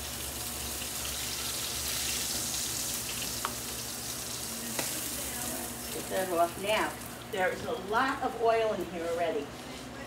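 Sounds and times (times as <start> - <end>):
chicken sizzling in a frying pan: 0.0 - 7.5.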